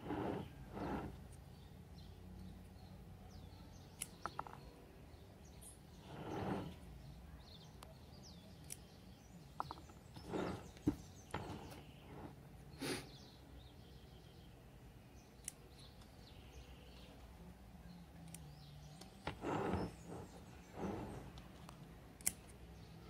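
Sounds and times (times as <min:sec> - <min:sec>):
scissors snipping leaves: 0:04.0 - 0:04.2, 0:22.2 - 0:22.5.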